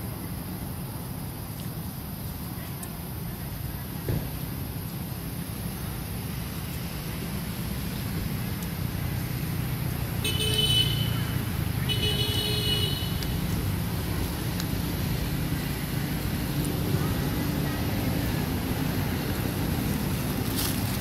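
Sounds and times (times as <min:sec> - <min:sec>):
road traffic rumble: 0:00.0 - 0:21.0
vehicle horn toots: 0:10.2 - 0:11.2, 0:11.8 - 0:13.2.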